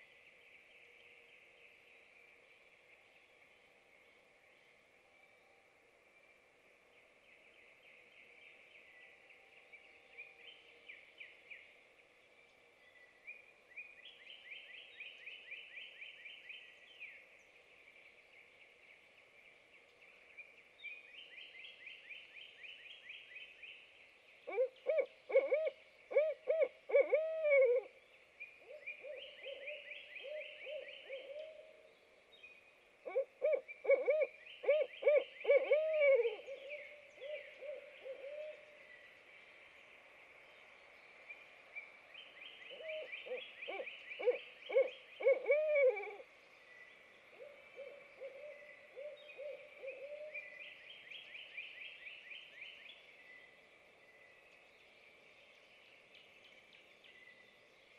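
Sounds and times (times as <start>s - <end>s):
owls hooting: 33.1s - 38.6s, 42.7s - 46.2s.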